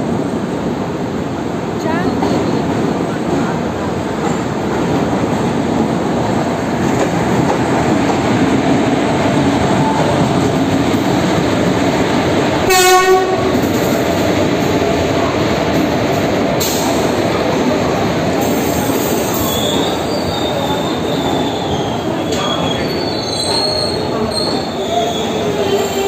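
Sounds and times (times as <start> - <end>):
train rolling past: 0.0 - 26.0
train horn blast: 12.6 - 13.6.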